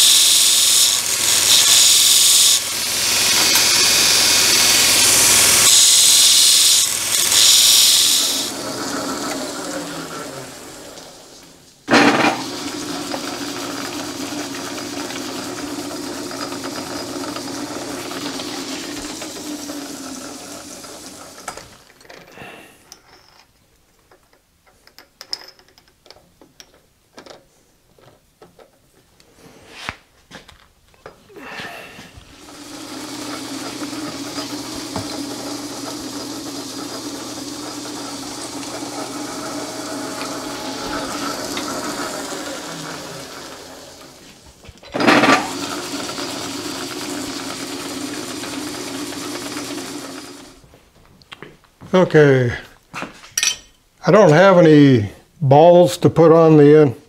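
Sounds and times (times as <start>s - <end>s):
lathe humming: 0.0s - 21.8s, 32.2s - 50.6s
belt grinder grinding steel: 0.0s - 22.0s, 32.2s - 50.6s.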